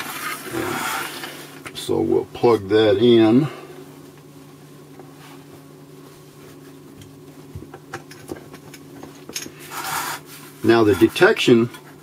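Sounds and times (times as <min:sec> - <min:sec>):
transformer electrical hum: 0:00.0 - 0:12.0.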